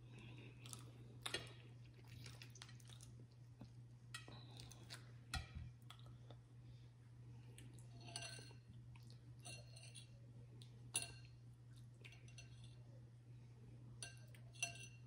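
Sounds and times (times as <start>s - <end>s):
clinks of tableware while eating: 8.0s - 8.6s, 9.4s - 10.2s, 11.0s - 11.4s, 12.1s - 12.8s, 14.0s - 15.0s.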